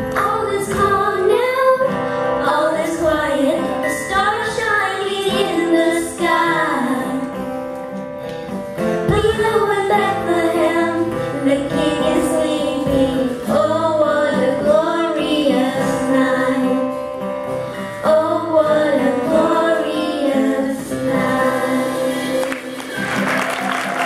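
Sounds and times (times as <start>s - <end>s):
woman singing: 0.0s - 7.5s, 9.1s - 17.0s, 17.9s - 23.0s
acoustic guitar: 0.0s - 24.0s
audience applause: 22.4s - 24.0s.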